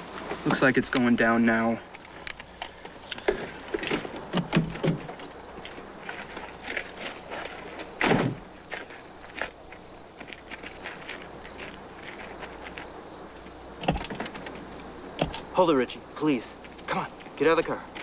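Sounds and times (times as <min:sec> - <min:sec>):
crickets chirping: 0:00.0 - 0:18.0
loud thump: 0:08.0 - 0:08.5.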